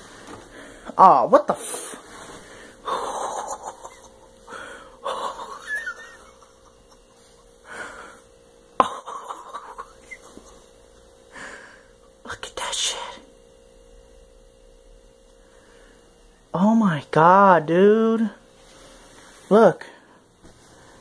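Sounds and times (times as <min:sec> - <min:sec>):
faint steady hum: 0:00.0 - 0:21.0
person breathing hard and gasping: 0:01.6 - 0:05.6, 0:07.6 - 0:08.3, 0:11.3 - 0:12.0.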